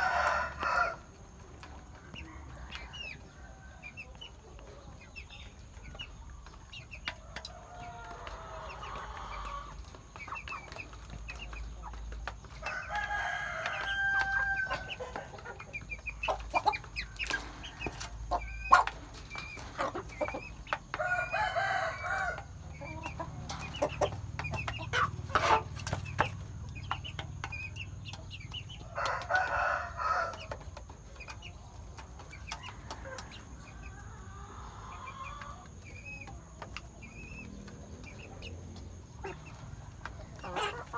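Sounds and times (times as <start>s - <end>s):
roosters crowing: 0.0s - 4.2s, 7.2s - 10.1s, 12.4s - 25.8s, 28.6s - 30.8s.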